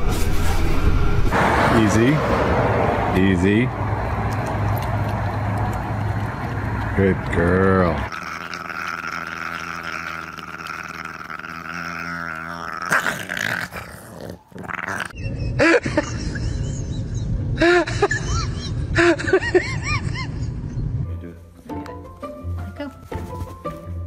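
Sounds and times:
dogs chewing bone toy: 4.1 - 15.0
dogs growling: 4.1 - 15.3.

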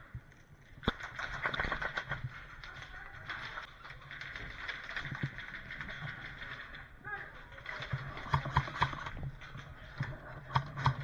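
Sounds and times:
scattered clicks: 0.1 - 11.0.

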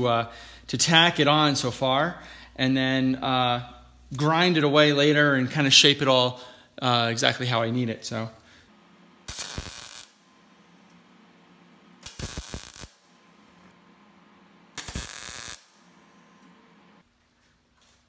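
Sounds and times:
welding arc bursts: 9.3 - 10.2, 12.0 - 13.1, 14.8 - 16.0.

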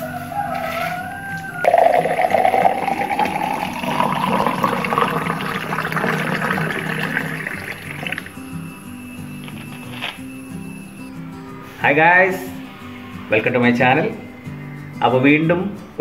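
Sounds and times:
soda pouring into glass of ice: 1.6 - 8.4.

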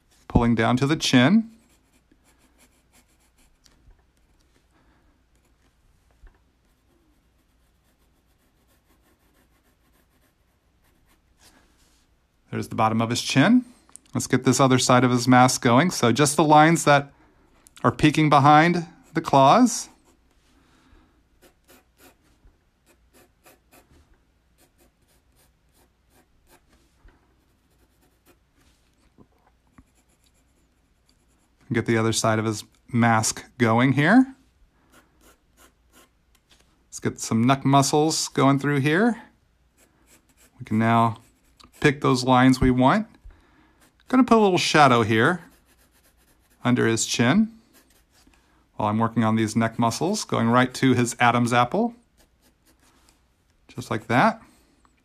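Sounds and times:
pencil scratching on paper: 1.5 - 3.6, 6.6 - 11.5, 21.4 - 23.9, 24.6 - 26.7, 27.4 - 28.5, 29.7 - 31.6, 34.9 - 36.2, 39.8 - 42.1, 45.4 - 46.7, 47.6 - 48.3, 52.0 - 53.0.

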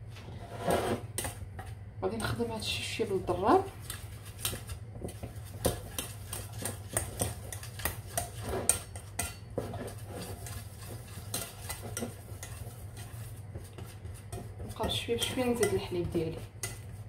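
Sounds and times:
whisk scraping metal pot: 0.3 - 17.0.

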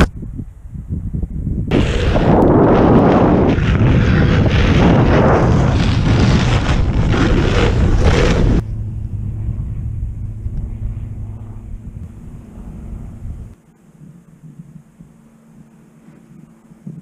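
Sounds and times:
wind buffeting microphone: 0.0 - 13.6.

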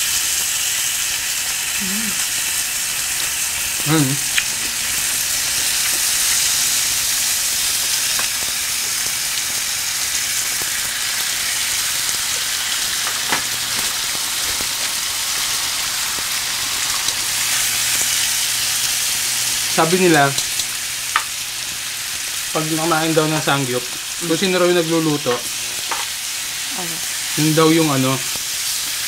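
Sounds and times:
meat sizzling on a grill pan: 0.0 - 29.0.

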